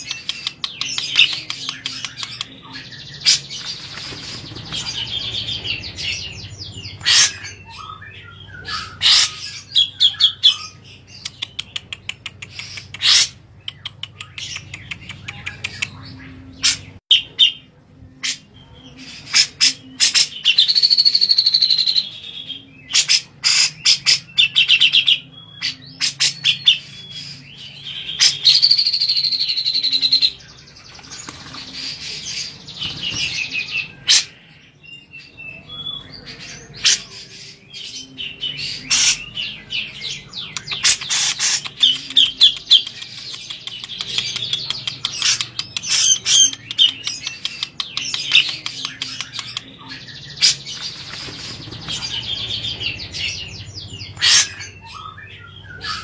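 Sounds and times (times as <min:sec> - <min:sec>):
bulbul chattering chirps: 0:00.0 - 0:17.6, 0:35.5 - 0:56.0.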